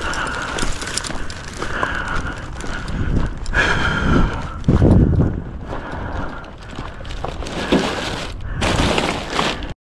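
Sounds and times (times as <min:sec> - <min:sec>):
footsteps on gravel: 0:00.0 - 0:09.7
plastic bag rustling: 0:06.6 - 0:09.8.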